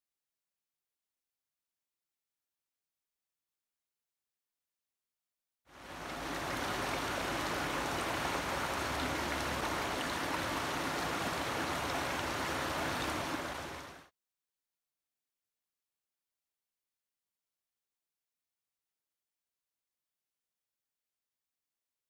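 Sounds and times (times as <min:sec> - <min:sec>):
creek rushing over stones: 0:05.7 - 0:14.1.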